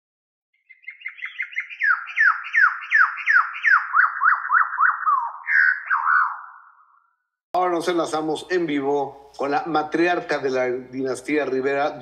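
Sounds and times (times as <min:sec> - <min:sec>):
rise-and-fall chirps: 0:00.6 - 0:07.4.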